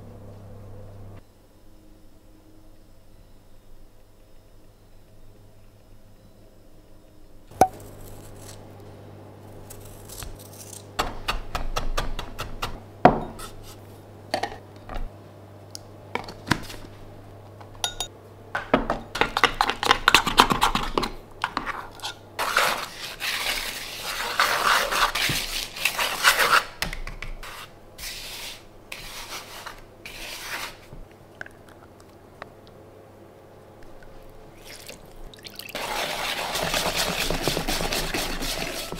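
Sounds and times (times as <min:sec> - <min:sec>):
low steady hum: 0:00.0 - 0:11.6
utensils clinking against bowls: 0:17.8 - 0:18.1
scraping in a bowl: 0:20.6 - 0:26.8, 0:27.4 - 0:30.9, 0:35.8 - 0:38.9
hands rubbing through dry flour: 0:27.4 - 0:30.9, 0:35.8 - 0:38.9.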